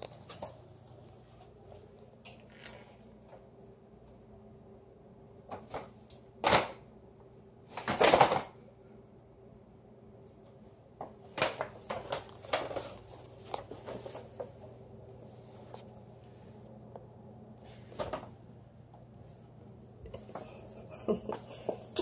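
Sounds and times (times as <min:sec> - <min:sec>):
paper bag rustling: 0:11.1 - 0:15.8.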